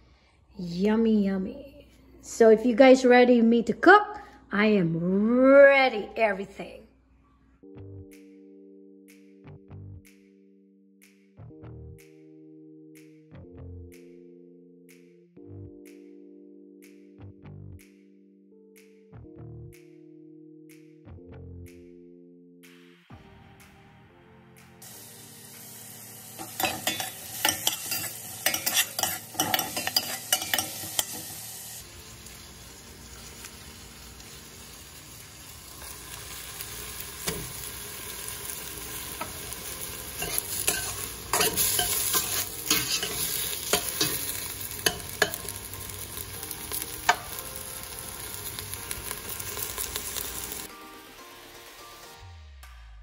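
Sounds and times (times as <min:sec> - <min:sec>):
vegetables sizzling in a pot: 0:24.8 - 0:51.9
metal spoon clinking and scraping pot: 0:26.4 - 0:31.5, 0:40.2 - 0:45.7.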